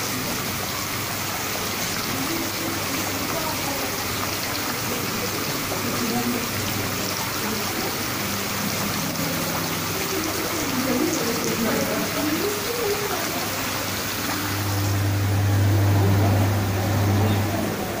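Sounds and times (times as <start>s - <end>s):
aquarium water churning: 0.0s - 18.0s
low steady hum: 8.3s - 18.0s.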